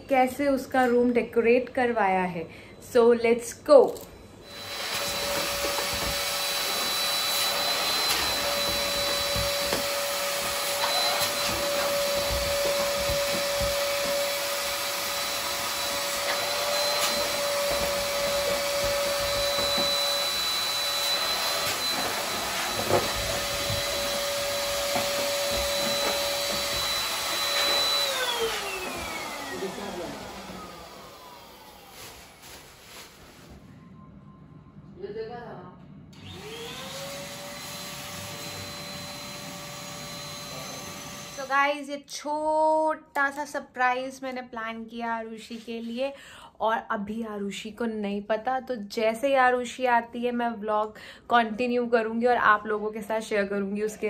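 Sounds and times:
electric blower motor whine: 4.4 - 32.5, 36.1 - 41.5.

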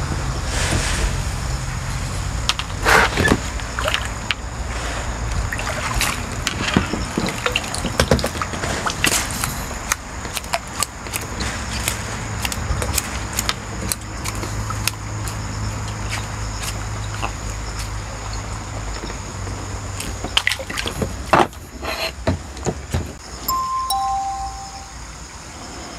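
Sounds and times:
water splashing and dripping: 3.4 - 4.5, 5.2 - 21.3.

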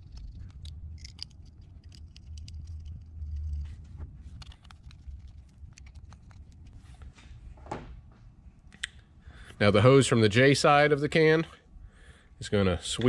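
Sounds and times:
screwdriver and screws clicking: 0.0 - 3.1
low rumble: 0.0 - 7.1.

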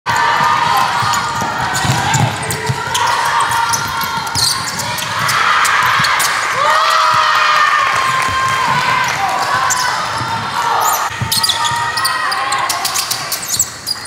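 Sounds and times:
basketball dribbling: 0.1 - 6.3
sneaker squeaks: 0.1 - 6.4, 9.3 - 14.0
voices echoing: 0.1 - 14.0.

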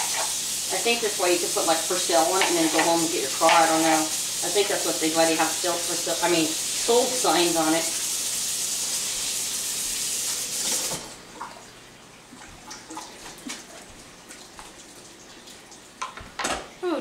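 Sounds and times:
tap running into sink: 2.2 - 4.0.

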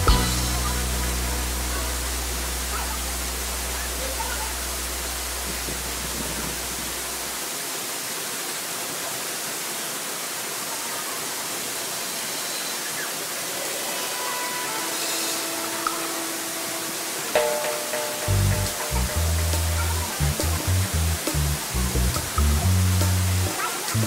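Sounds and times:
low background music bass: 0.0 - 7.2, 18.3 - 24.0
waterfall pouring: 0.0 - 24.0.

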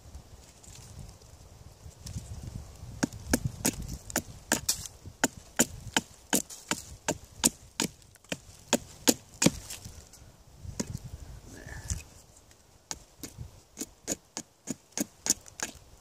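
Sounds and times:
hatchet chopping wood: 3.0 - 9.8, 12.9 - 15.8.

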